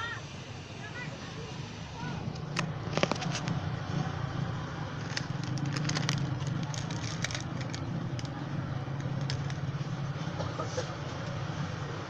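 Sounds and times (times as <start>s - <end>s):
foil sachet crinkling: 2.8s - 3.6s, 5.0s - 9.7s.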